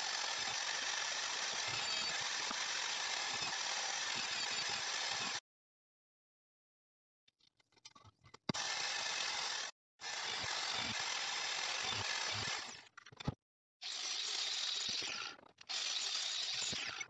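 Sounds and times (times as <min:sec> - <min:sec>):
harsh power tool noise: 0:00.0 - 0:05.4.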